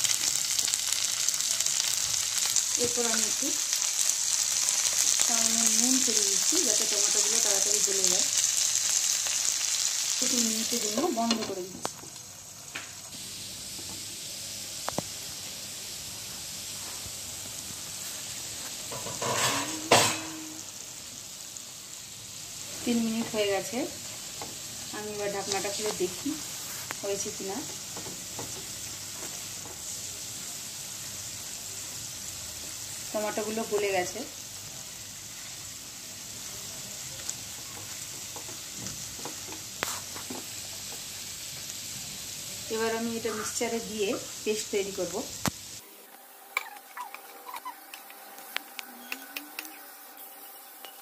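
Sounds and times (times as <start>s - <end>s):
vegetables sizzling in oil: 0.0s - 51.0s.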